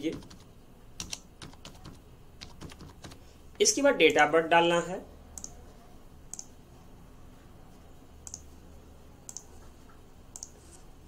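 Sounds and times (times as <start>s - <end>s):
mouse button clicking: 9.3s - 9.5s.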